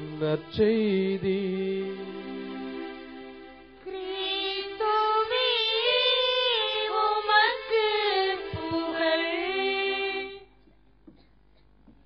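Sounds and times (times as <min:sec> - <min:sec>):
held keyboard chords: 0:00.0 - 0:09.5
high voice singing: 0:03.9 - 0:10.4.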